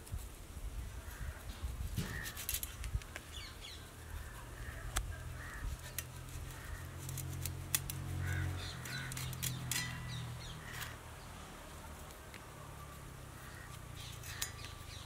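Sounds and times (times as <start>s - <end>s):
dried fish cut by blade: 2.0s - 2.8s, 5.4s - 11.0s, 13.4s - 15.0s
birds chirping: 3.0s - 7.3s, 8.0s - 15.0s.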